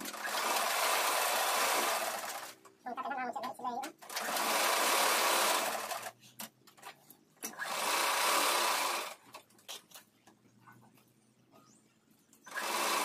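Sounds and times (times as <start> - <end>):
sewing machine stitching: 0.0 - 2.6, 4.0 - 6.2, 7.4 - 9.2, 12.5 - 13.0.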